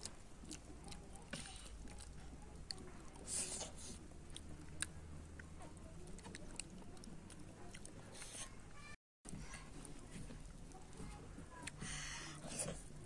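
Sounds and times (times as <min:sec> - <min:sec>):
close-up chewing and biting: 0:00.0 - 0:08.6.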